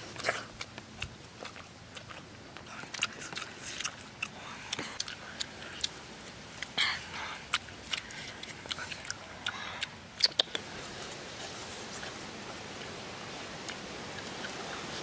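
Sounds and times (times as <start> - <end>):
wet mouth clicks: 0.0 - 10.7
person chewing soft fruit: 0.0 - 15.0.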